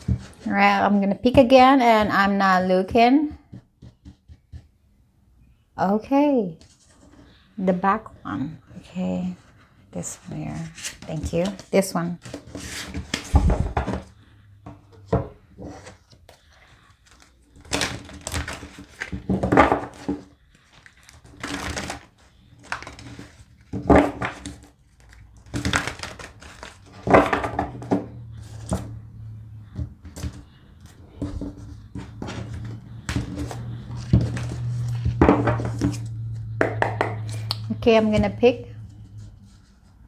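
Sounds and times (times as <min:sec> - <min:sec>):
cards being shuffled: 0:16.0 - 0:29.0, 0:30.0 - 0:37.6.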